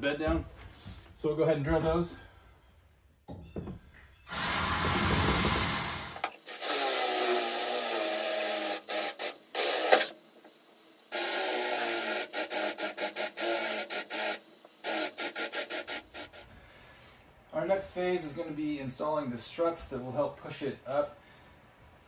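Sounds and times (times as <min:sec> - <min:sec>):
cordless drill boring through steel: 0:04.3 - 0:10.2, 0:11.1 - 0:16.4.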